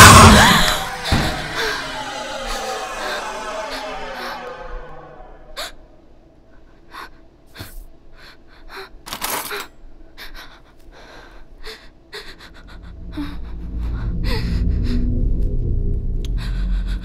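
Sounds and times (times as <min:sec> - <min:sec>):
low rumble: 0:00.0 - 0:06.4, 0:12.2 - 0:17.0.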